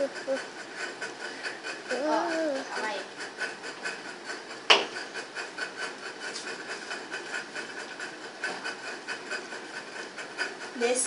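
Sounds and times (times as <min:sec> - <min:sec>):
camera knock: 0:04.7 - 0:04.9.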